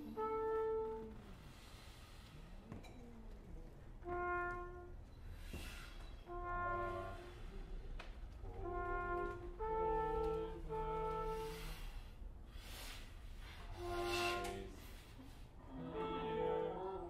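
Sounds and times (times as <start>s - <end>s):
trumpet and trombone held notes: 0.0s - 1.7s, 4.0s - 5.4s, 6.2s - 7.6s, 8.4s - 12.1s, 13.4s - 15.1s, 15.8s - 16.9s
breathy hiss: 1.2s - 2.8s, 5.2s - 6.4s, 11.2s - 15.9s.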